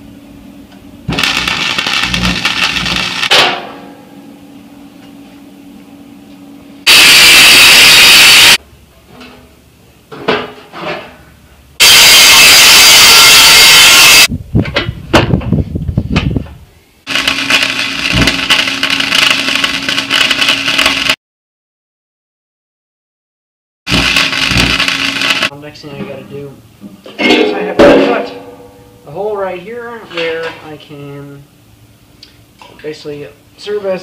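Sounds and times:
crackling arc welding: 0:01.1 - 0:03.4, 0:06.9 - 0:08.6, 0:11.8 - 0:14.3, 0:17.1 - 0:21.2, 0:23.9 - 0:25.5
angle grinder cutting steel: 0:17.1 - 0:21.1, 0:23.9 - 0:25.5.

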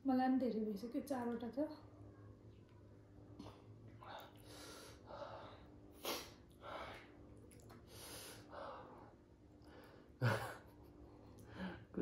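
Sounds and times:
person breathing: 0:04.0 - 0:05.7.

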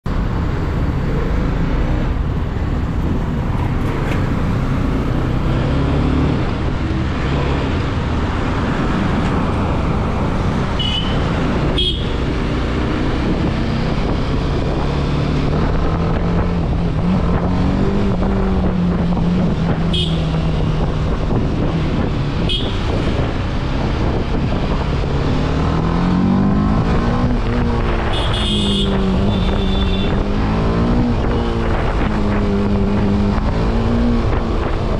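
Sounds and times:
motorcycle engine accelerating: 0:01.0 - 0:34.9.

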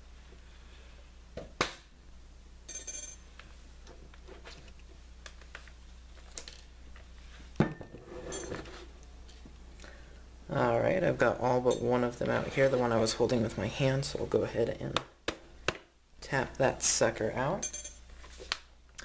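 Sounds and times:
steady low hum: 0:00.0 - 0:19.0
small screws clinking: 0:02.7 - 0:03.3.

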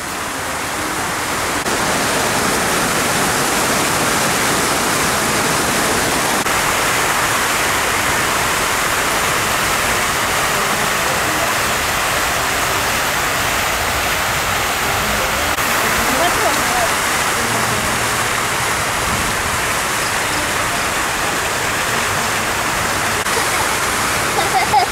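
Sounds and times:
fountain water splashing: 0:00.0 - 0:24.9.

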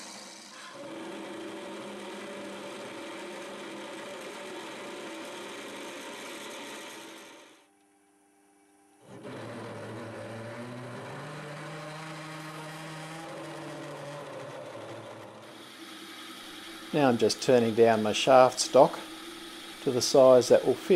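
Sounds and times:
metal lathe drilling into steel: 0:00.0 - 0:07.6, 0:09.1 - 0:20.9.

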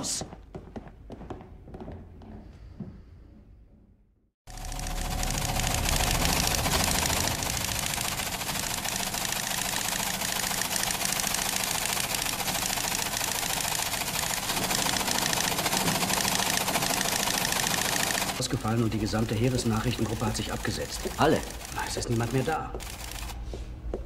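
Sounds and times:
teleprinter clattering: 0:05.3 - 0:23.3.

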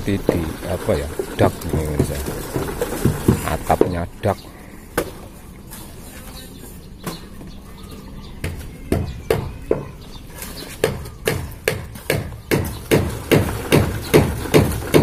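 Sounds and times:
sharp knocks on wooden formwork: 0:01.7 - 0:04.0, 0:08.4 - 0:10.0, 0:10.8 - 0:15.0.

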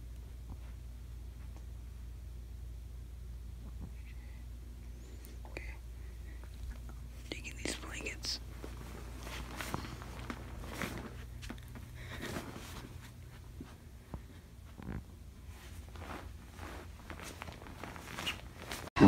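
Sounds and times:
low steady hum: 0:00.0 - 0:19.0
faint rustling and handling: 0:06.0 - 0:18.9.

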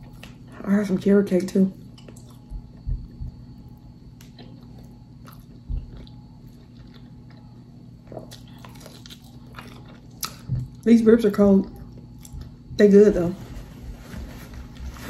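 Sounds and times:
wet chewing and biting: 0:01.9 - 0:10.8.

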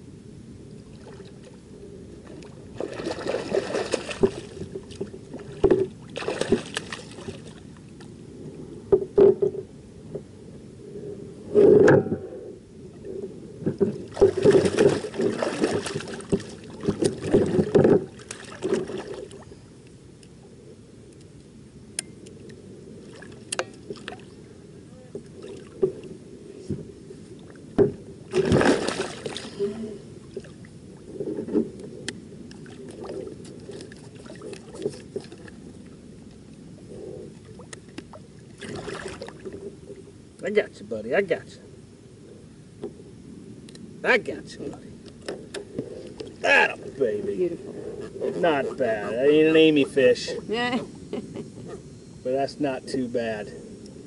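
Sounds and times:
fish splashing water: 0:02.8 - 0:07.6, 0:14.0 - 0:19.4, 0:28.3 - 0:29.6, 0:38.6 - 0:39.5.

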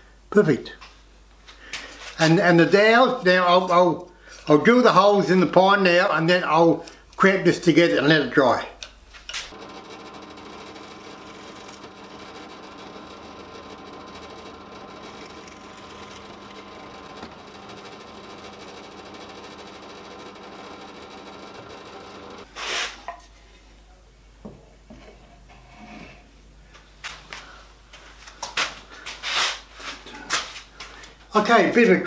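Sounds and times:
drill press motor running: 0:09.5 - 0:22.5.

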